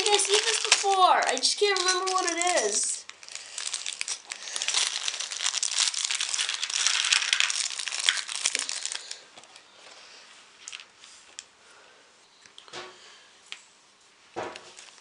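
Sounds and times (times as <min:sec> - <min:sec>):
plastic bag crinkling: 0:00.0 - 0:09.6, 0:10.6 - 0:11.4, 0:14.6 - 0:15.0.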